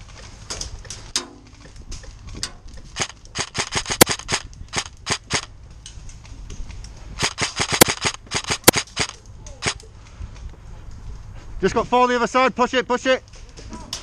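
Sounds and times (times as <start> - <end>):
airsoft rifle shots cracking: 3.0 - 5.5, 7.2 - 9.8.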